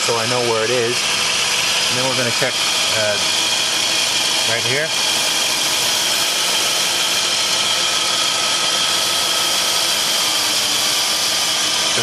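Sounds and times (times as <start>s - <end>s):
car engine idling: 0.0s - 5.8s.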